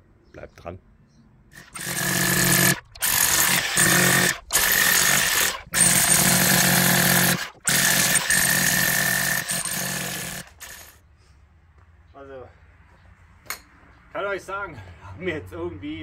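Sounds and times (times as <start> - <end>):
demolition hammer chiselling concrete: 1.6 - 11.0.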